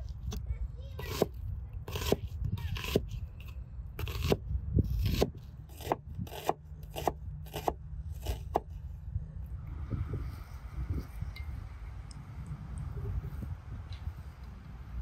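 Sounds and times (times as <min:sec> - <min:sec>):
knife slicing onion on board: 0:01.9 - 0:03.2, 0:04.0 - 0:04.4, 0:05.0 - 0:08.7.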